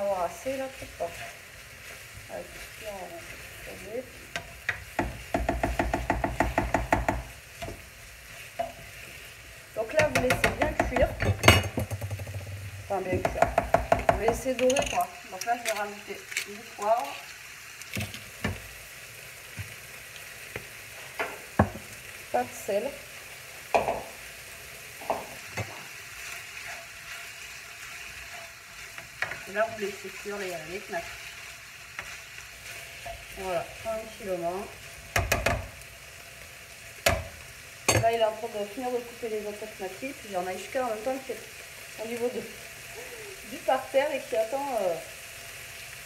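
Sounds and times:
spatula stirring in a pan: 0.0s - 11.7s, 12.6s - 38.1s
faint sizzle: 0.0s - 46.0s
utensil knocking on frying pan: 4.7s - 7.8s, 9.9s - 14.6s, 21.2s - 21.9s, 23.7s - 24.2s, 35.1s - 35.7s.

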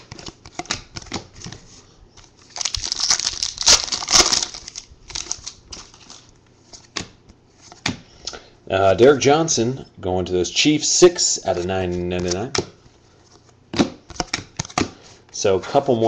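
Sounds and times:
cards clicking and rustling: 0.0s - 1.6s
plastic crinkling: 2.2s - 6.3s.

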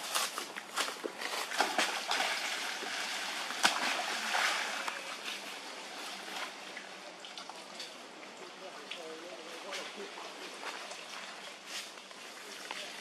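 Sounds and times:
animals splashing through water: 1.1s - 7.8s.

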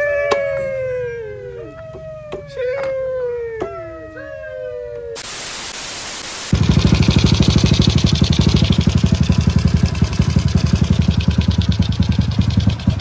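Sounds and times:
even hiss: 5.2s - 6.6s
motorcycle engine running: 6.5s - 13.0s.

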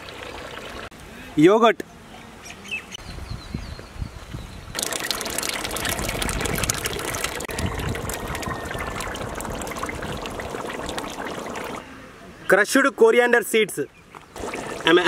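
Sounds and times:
yogurt pouring and splattering: 4.8s - 11.8s.

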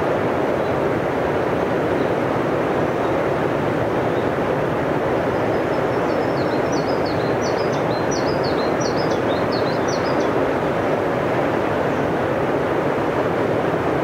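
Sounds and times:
river rushing over rocks: 0.0s - 14.0s
songbird singing: 5.3s - 10.4s.

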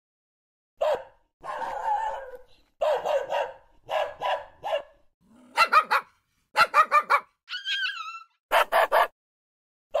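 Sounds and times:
dog barking: 0.8s - 7.6s, 8.5s - 9.2s
dog whining: 7.5s - 8.4s.

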